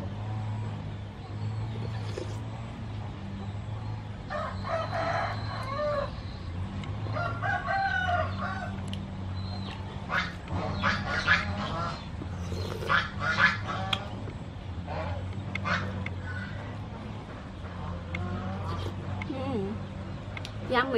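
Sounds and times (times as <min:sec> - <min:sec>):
steady low hum: 0:00.0 - 0:20.9
rooster crowing: 0:04.3 - 0:06.2, 0:07.0 - 0:08.9.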